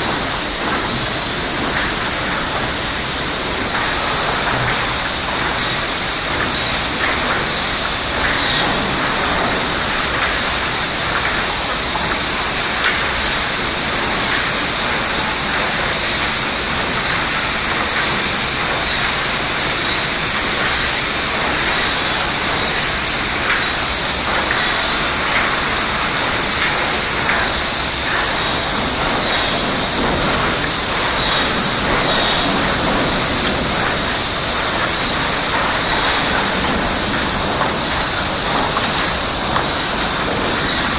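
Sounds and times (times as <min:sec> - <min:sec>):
sawmill machinery running: 0:00.0 - 0:40.9.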